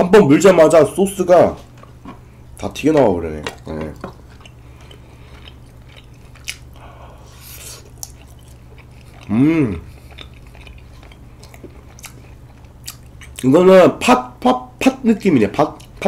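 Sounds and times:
steady low hum: 0.0 - 16.0
sticky chewing of rice cake: 2.0 - 13.6, 15.6 - 16.0
person humming mm: 9.2 - 10.0.

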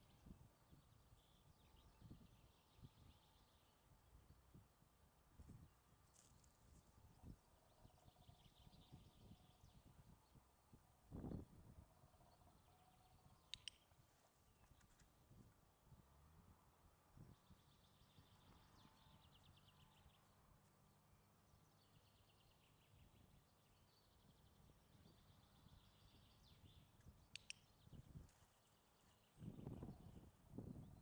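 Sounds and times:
faint trilling bird song: 0.0 - 4.7, 5.6 - 15.5, 17.2 - 31.0
dog-training clicker clicks: 13.5 - 13.8, 27.3 - 27.7.

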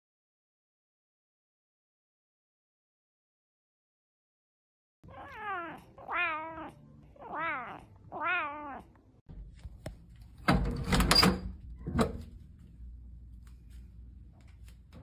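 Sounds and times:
cat meowing: 5.0 - 9.0.

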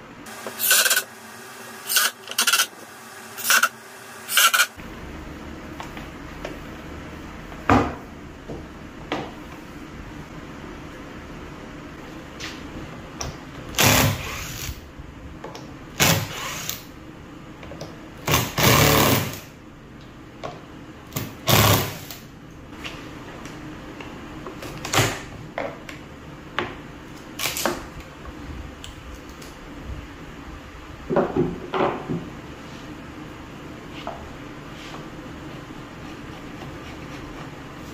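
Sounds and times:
impact driver driving screws: 0.4 - 1.1, 1.8 - 4.8.

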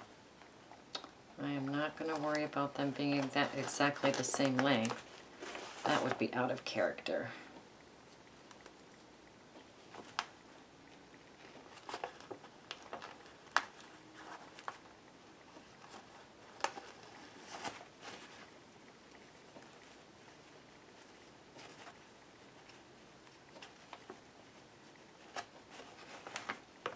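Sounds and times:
paper bag and twine rustling: 2.0 - 6.7.

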